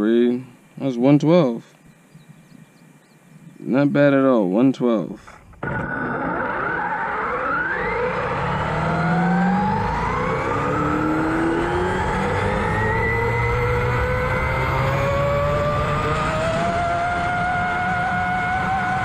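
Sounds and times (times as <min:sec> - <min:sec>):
electric motor and gears whining: 0:05.2 - 0:19.0
tyres rumbling on road: 0:05.3 - 0:19.0.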